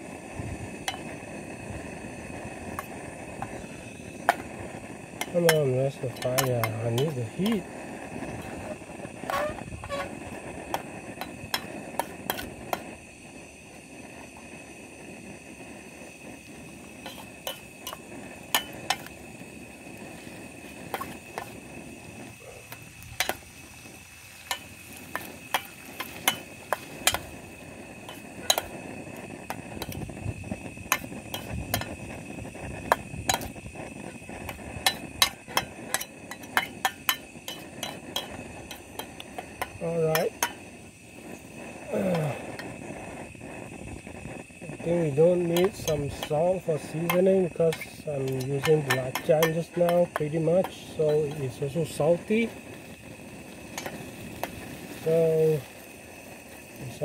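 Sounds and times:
steady background hiss: 0.0s - 57.0s
metal spoon clinking against pan: 5.2s - 7.6s, 17.0s - 19.1s, 24.4s - 27.3s, 28.1s - 28.8s, 30.9s - 32.0s, 33.3s - 33.5s, 34.5s - 40.6s, 47.1s - 51.4s.

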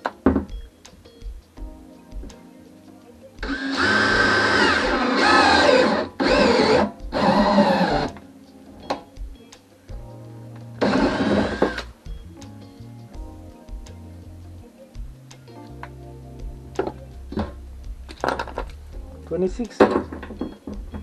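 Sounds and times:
background music with beat: 0.0s - 21.0s
drill boring through plastic: 3.4s - 8.2s, 10.8s - 11.8s.

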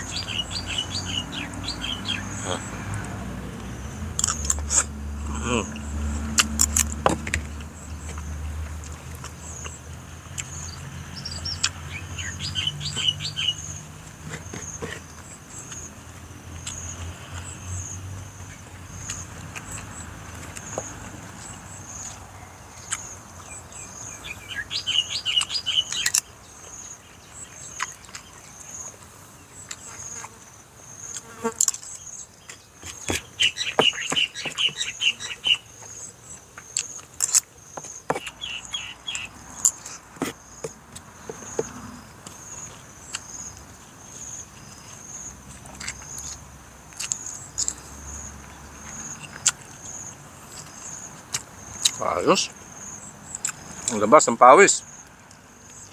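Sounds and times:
insect chirping: 0.0s - 55.9s
insect trills: 0.0s - 55.9s
chewing: 2.4s - 5.6s, 6.2s - 10.7s, 14.0s - 17.5s, 18.3s - 23.6s, 25.4s - 26.8s, 27.6s - 30.4s, 31.0s - 34.9s, 35.6s - 38.4s, 41.0s - 52.0s, 53.3s - 54.0s.

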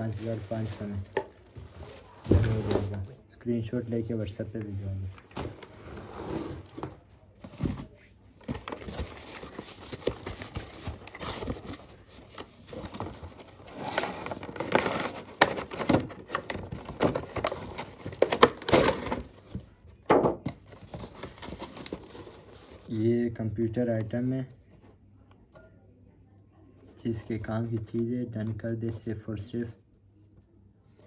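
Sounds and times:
plastic packaging crinkling: 0.0s - 3.0s.

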